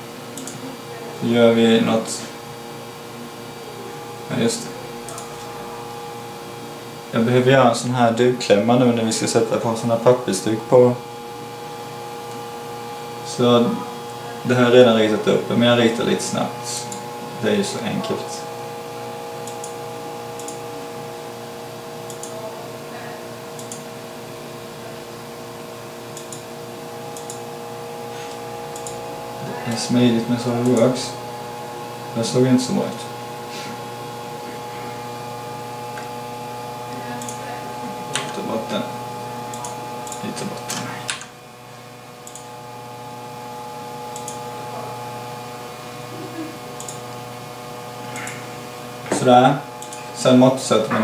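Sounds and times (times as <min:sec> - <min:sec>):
steady background hum: 0:00.0 - 0:51.0
computer mouse clicking: 0:00.4 - 0:00.6, 0:19.4 - 0:19.8, 0:20.4 - 0:20.6, 0:22.0 - 0:22.4, 0:23.5 - 0:23.9, 0:26.1 - 0:26.5, 0:27.1 - 0:27.4, 0:28.3 - 0:29.0, 0:37.2 - 0:37.4, 0:39.5 - 0:41.3, 0:42.2 - 0:42.5, 0:44.1 - 0:44.4, 0:46.8 - 0:47.0, 0:49.8 - 0:50.0.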